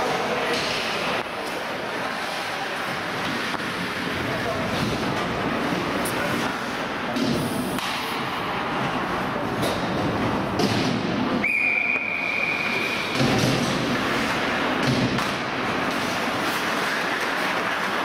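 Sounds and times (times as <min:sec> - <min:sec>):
pucks and sticks hitting boards: 0:00.1 - 0:05.5, 0:06.2 - 0:11.4, 0:12.0 - 0:18.0
referee's whistle: 0:11.4 - 0:13.2.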